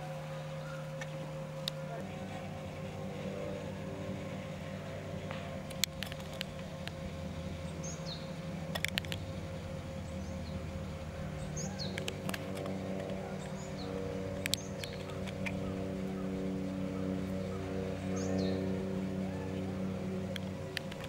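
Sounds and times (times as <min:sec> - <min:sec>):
steady hum: 0:00.0 - 0:21.0
sharp clicks: 0:05.2 - 0:07.0, 0:08.6 - 0:09.3, 0:11.8 - 0:15.6, 0:20.2 - 0:21.0.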